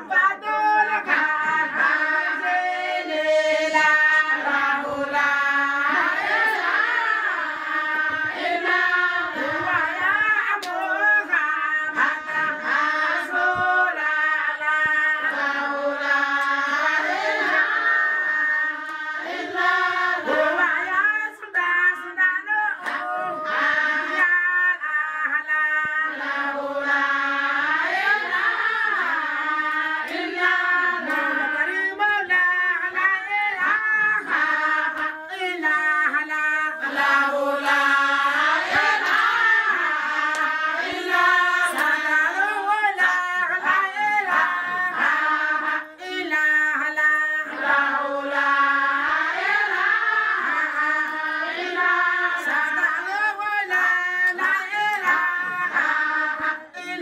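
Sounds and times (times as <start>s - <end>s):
women singing devotional chant: 0.0s - 57.0s.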